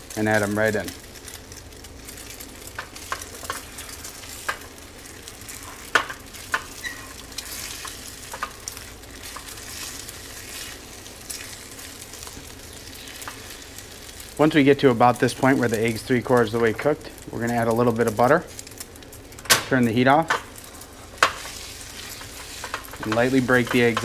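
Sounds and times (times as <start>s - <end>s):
eggs sizzling in oil: 0.0s - 24.0s
spatula scraping a pan: 20.6s - 24.0s.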